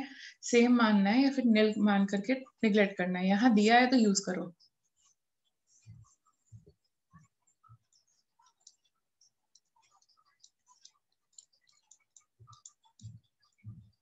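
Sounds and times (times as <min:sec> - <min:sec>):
stylus tapping on pen tablet: 0:05.9 - 0:14.0.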